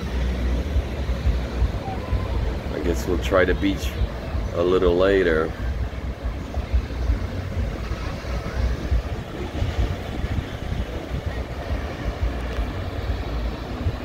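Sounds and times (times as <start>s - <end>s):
surf washing: 0.0s - 14.0s
wind buffeting microphone: 0.0s - 14.0s.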